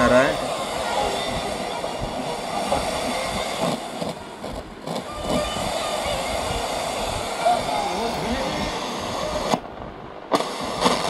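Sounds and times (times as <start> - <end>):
radio broadcast: 0.0 - 9.7
radio static hiss: 0.0 - 11.0.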